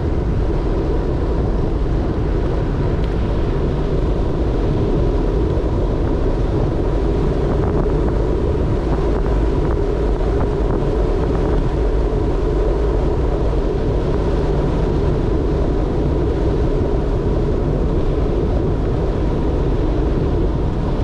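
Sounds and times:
wind on microphone: 0.0s - 21.0s.

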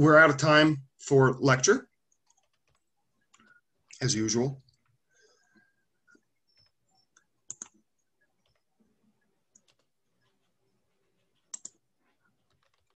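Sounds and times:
computer mouse clicks: 2.1s - 4.0s, 4.6s - 13.0s.

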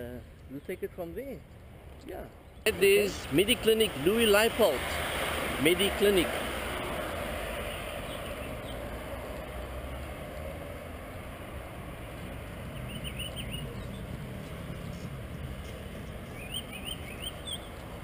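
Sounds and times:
traffic rumble: 0.0s - 18.0s
bird chirps: 7.6s - 8.9s, 12.7s - 14.1s, 16.3s - 17.8s.

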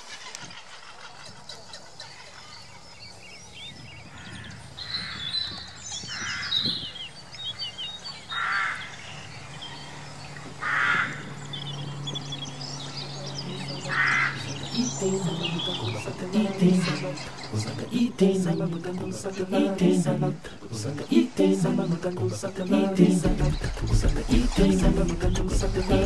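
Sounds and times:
harsh caw-like bird calls: 4.1s - 6.9s, 8.2s - 11.9s, 13.8s - 14.6s
chatter of high chirps: 11.3s - 26.0s.

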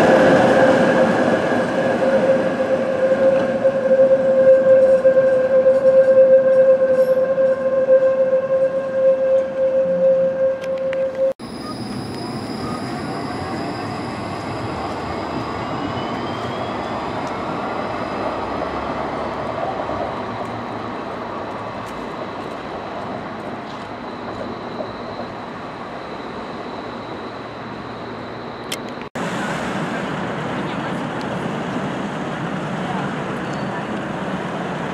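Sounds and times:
tram traction motors whining: 0.0s - 29.1s
wheels rumbling on rail: 0.0s - 34.9s
thin high whistle: 2.0s - 17.3s.

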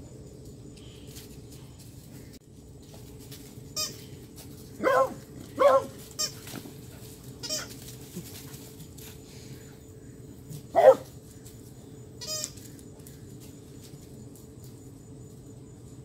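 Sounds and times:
dog yipping: 4.8s - 6.3s, 10.8s - 11.0s.

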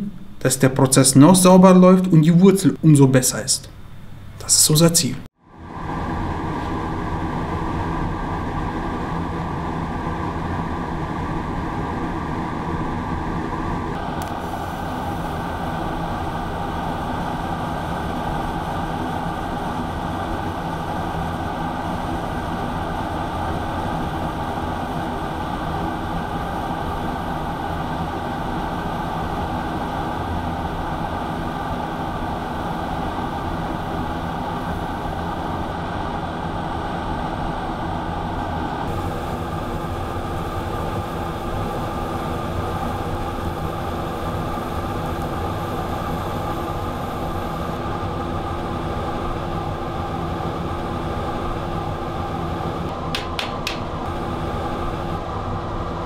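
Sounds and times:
welding arc hissing and humming: 14.0s - 35.8s, 38.0s - 55.2s.

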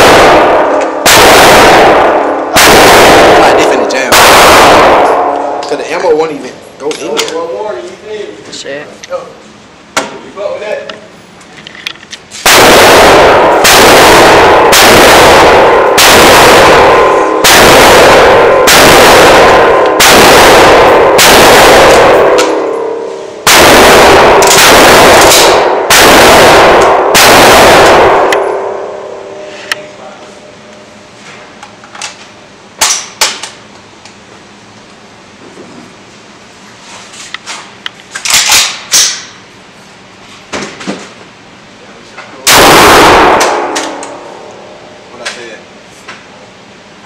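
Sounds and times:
loud shotgun shots echoing: 0.0s - 5.6s, 12.4s - 29.0s, 42.4s - 44.2s.

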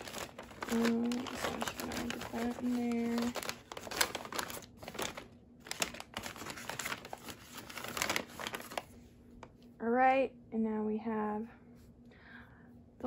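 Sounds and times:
plastic packaging crinkling: 0.0s - 9.0s.

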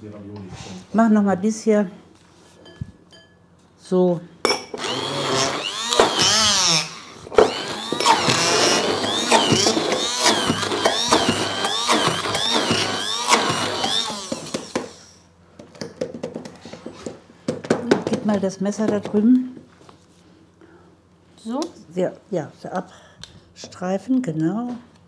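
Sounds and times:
immersion blender running: 4.8s - 15.2s.

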